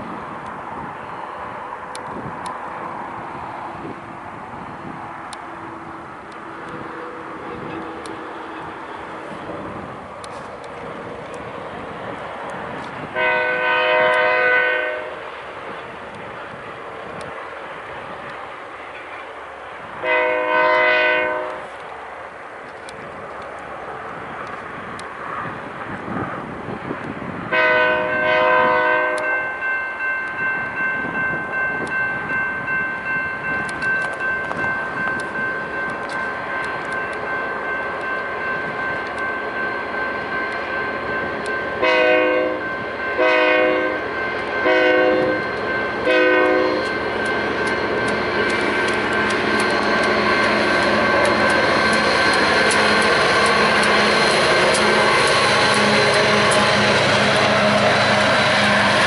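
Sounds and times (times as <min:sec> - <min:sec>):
train rumbling past: 0:00.0 - 0:59.0
train air horn blasts: 0:13.1 - 0:15.3, 0:20.0 - 0:21.8, 0:27.5 - 0:29.4, 0:41.8 - 0:47.0, 0:54.6 - 0:59.0.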